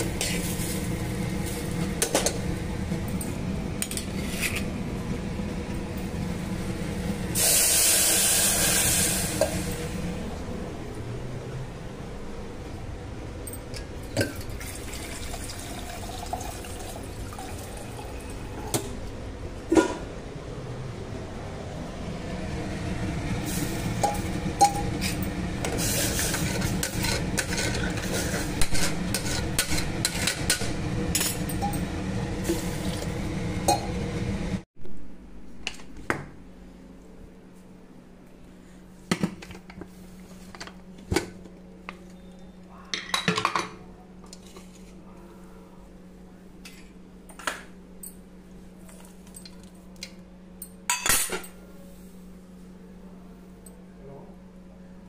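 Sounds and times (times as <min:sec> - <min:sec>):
low steady hum: 0:00.0 - 0:55.0
pressure cooker crackling hiss: 0:07.4 - 0:09.7.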